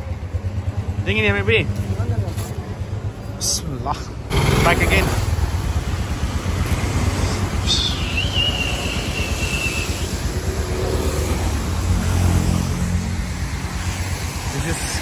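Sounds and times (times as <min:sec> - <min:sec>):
motorcycle engine rumbling: 0:00.0 - 0:15.0
high whistling tone: 0:07.6 - 0:10.2.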